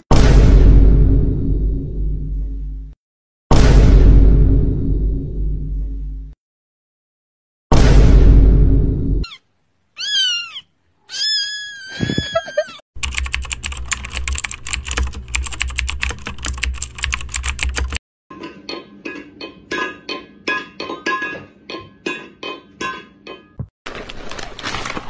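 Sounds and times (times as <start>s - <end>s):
cat meowing: 10.0s - 12.8s
typing on computer keyboard: 13.0s - 18.0s.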